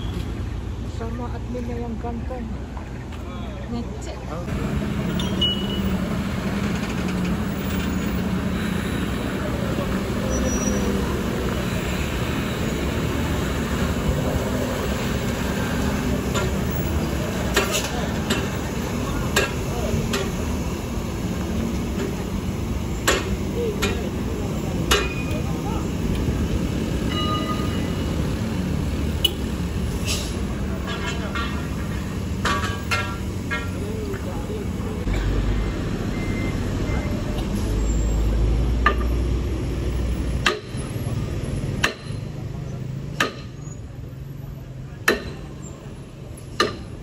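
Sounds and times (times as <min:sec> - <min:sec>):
truck diesel engine rumbling: 0:00.0 - 0:47.0.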